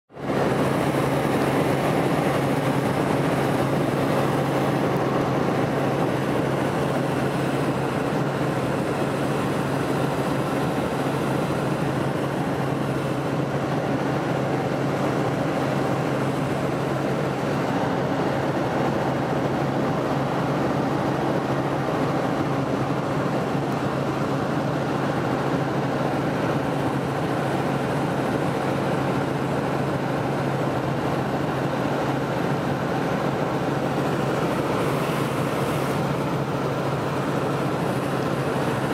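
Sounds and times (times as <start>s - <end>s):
helicopter rotor and engine drone: 0.1s - 38.9s.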